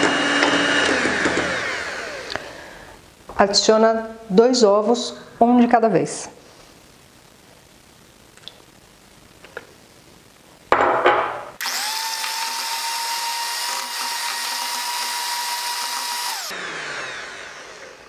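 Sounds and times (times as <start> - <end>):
electric mixer motor whine: 0.0 - 3.0, 11.6 - 18.0.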